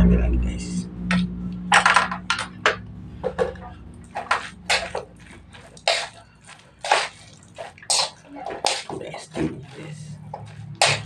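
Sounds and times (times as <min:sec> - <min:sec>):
noodles slurped and chewed: 0:04.1 - 0:11.0.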